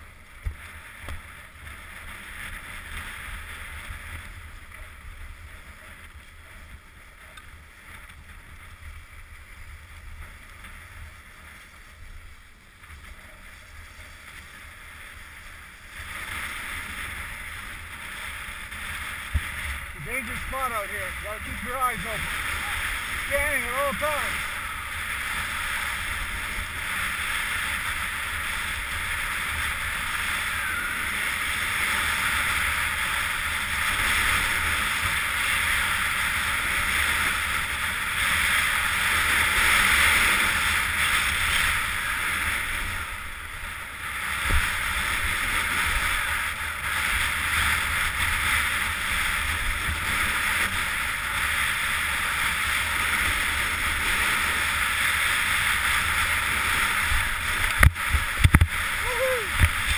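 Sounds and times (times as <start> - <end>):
skis sliding on snow: 0.0 - 59.9
wind rumble on microphone: 0.0 - 59.9.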